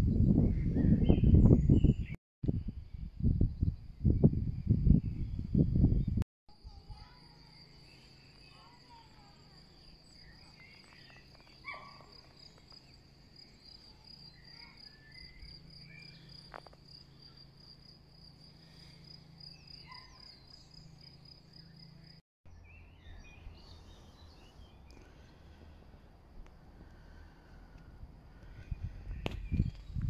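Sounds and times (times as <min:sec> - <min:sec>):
cricket trilling: 0:06.7 - 0:22.2
birds chirping: 0:07.0 - 0:16.6, 0:18.6 - 0:25.8.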